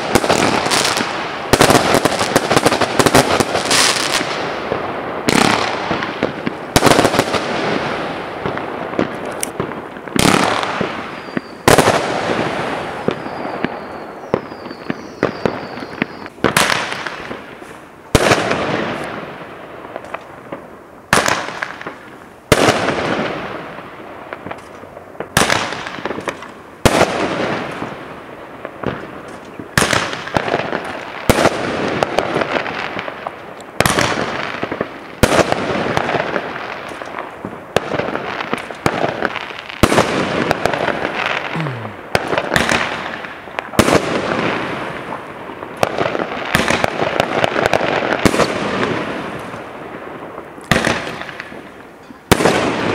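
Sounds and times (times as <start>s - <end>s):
fireworks bursting with bangs: 0.0s - 52.9s
faint high whistles: 11.1s - 11.6s, 13.1s - 16.4s.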